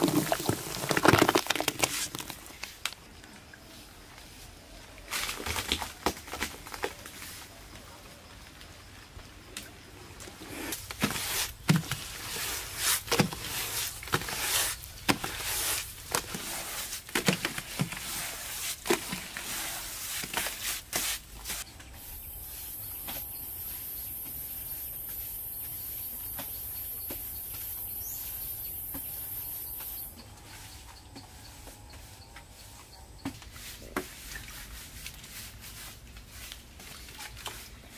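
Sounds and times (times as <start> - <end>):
hands working wet mud plaster: 0.0 - 2.6, 10.5 - 21.7, 33.3 - 37.9.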